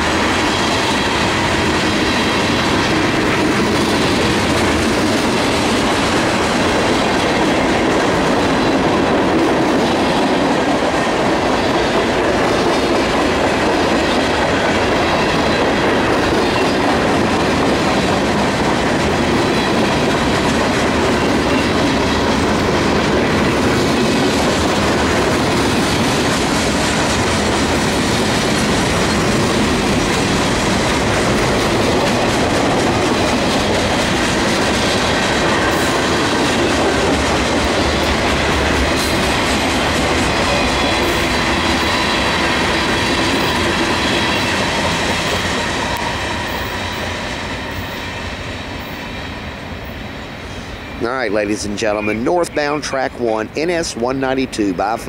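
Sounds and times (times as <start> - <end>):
steel wheels rushing on rail: 0.0 - 55.0.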